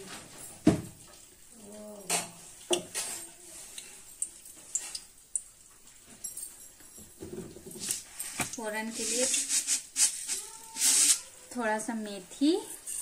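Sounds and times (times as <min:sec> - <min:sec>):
kitchen utensils clinking and knocking: 0:05.7 - 0:11.6, 0:12.3 - 0:13.0.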